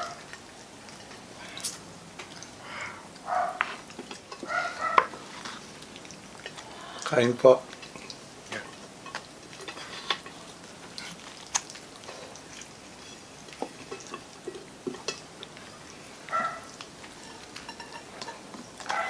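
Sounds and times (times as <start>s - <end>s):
tongs clicking against plates: 0.0s - 2.5s, 7.7s - 15.7s, 16.3s - 19.0s.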